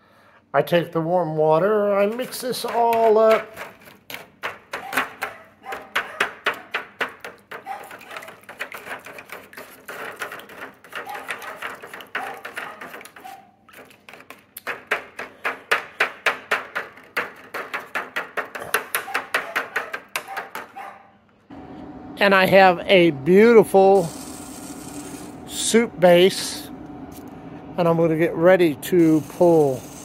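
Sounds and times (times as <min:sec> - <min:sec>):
spoon scraping foil pan: 0:01.7 - 0:06.0, 0:07.3 - 0:14.7, 0:23.9 - 0:25.4, 0:29.0 - 0:30.0.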